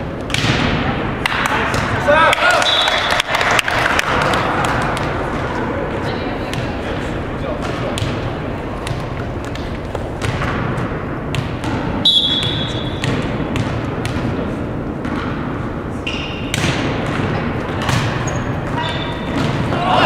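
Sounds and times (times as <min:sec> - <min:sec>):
ball bouncing on wooden floor: 0:08.8 - 0:14.4.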